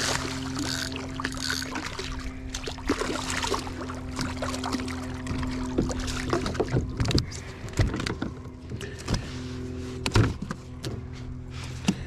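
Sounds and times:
electric motor humming: 0.0 - 2.9.

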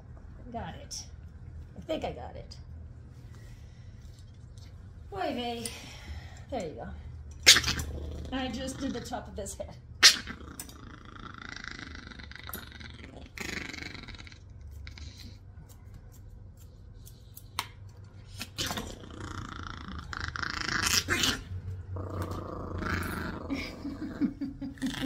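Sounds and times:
puppy growling: 7.4 - 9.4, 10.0 - 15.4, 18.2 - 25.0
scissors snipping fur: 14.6 - 19.0.

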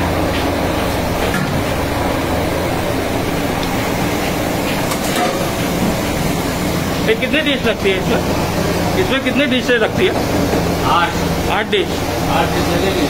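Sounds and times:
kitchen machinery hum: 0.0 - 13.0
metal pans clinking: 4.9 - 5.6.

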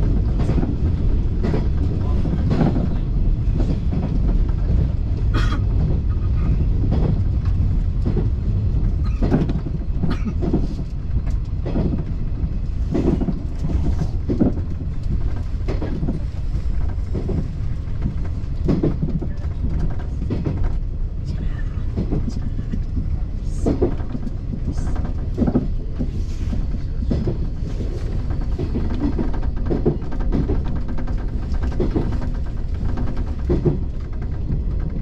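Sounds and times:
train wheels rumbling on rail: 0.0 - 35.0
wheels knocking over rail joints: 21.9 - 35.0.

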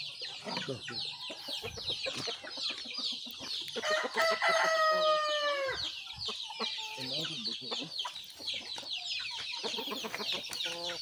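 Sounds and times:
chicks peeping: 0.0 - 11.0
rooster crowing: 3.8 - 5.9.

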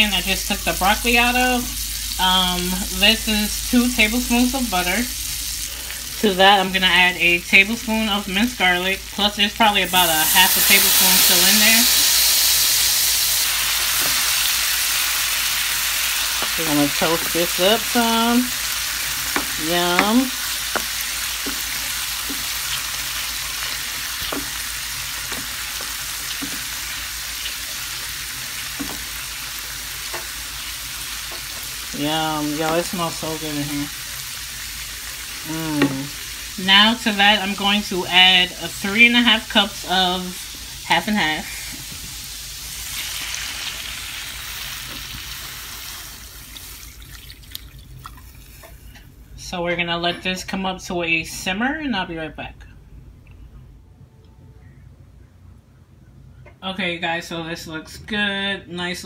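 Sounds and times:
garlic sizzling in butter: 0.0 - 48.9
wooden spoon knocking on pan: 19.3 - 22.5, 24.2 - 24.6, 28.8 - 29.1.

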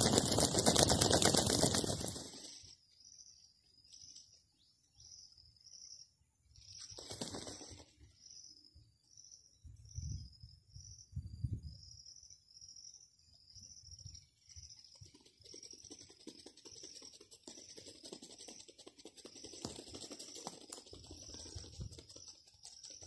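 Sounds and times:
peacock feathers rattling: 0.0 - 2.8, 6.9 - 8.0, 14.8 - 23.0.

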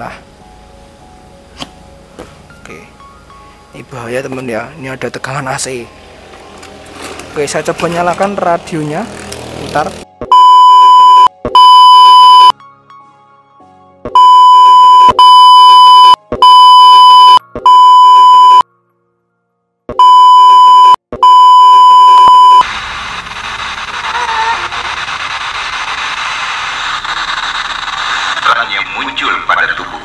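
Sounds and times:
loud bleep tone: 10.3 - 12.6, 14.2 - 18.6, 20.0 - 22.6
radio static hiss: 22.6 - 30.0.

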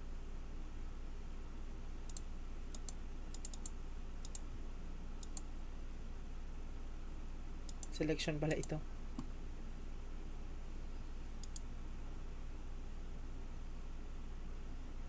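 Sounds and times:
low steady hum: 0.0 - 15.0
computer mouse and keys clicking: 2.1 - 4.4, 5.2 - 5.5, 7.7 - 9.3, 11.4 - 11.7.

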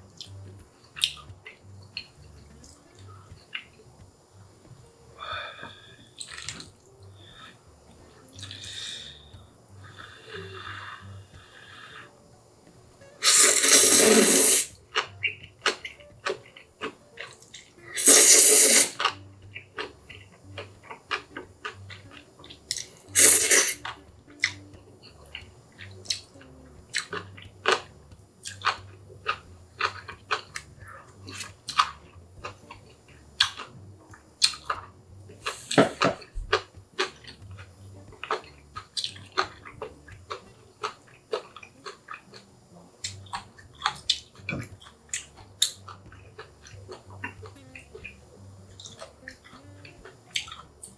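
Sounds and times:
wet chewing: 5.6 - 7.5, 13.2 - 50.9
noodles slurped loudly: 13.2 - 14.7, 18.0 - 19.0.

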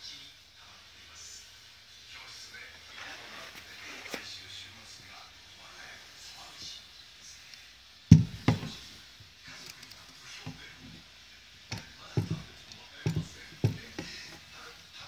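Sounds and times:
metal pump knocking on wooden bench: 8.1 - 8.8, 11.7 - 14.4.

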